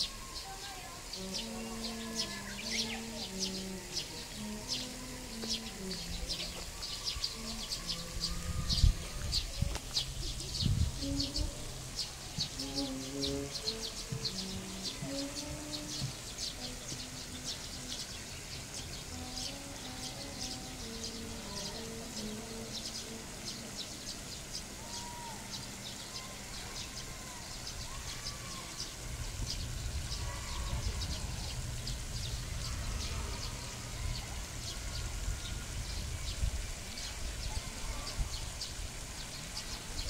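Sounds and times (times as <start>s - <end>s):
short calls: 0.0s - 29.1s.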